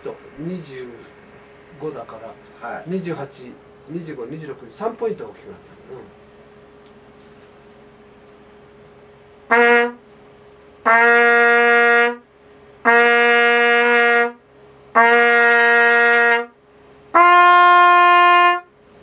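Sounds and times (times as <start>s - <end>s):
trumpet notes: 9.5s - 10.0s, 10.8s - 18.8s.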